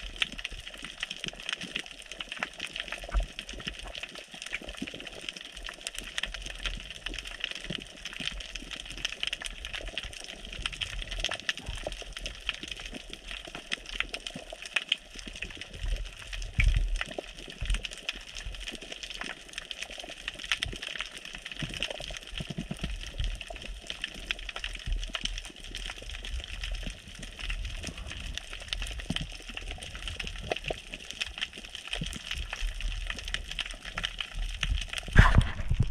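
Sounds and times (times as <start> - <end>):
crackle of fine underwater clicks: 0.0 - 35.9
low rumble of moving water: 0.0 - 35.9
loud underwater thump: 35.2 - 35.9.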